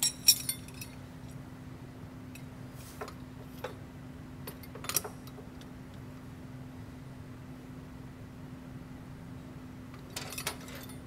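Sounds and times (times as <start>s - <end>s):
light metallic clicks and clinks: 0.0s - 1.4s
steady low hum: 0.0s - 11.0s.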